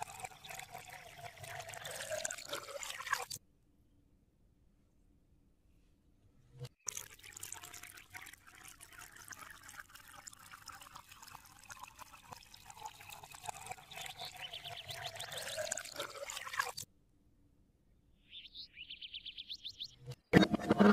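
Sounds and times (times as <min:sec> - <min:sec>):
water splashing from a hose: 0:00.0 - 0:03.4, 0:06.8 - 0:16.8.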